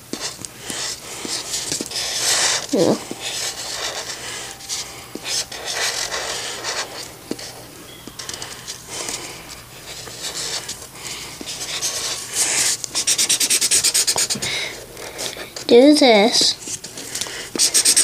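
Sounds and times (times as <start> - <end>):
drawing tool scratching paper: 0.0 - 7.5, 8.2 - 14.4, 17.5 - 18.0.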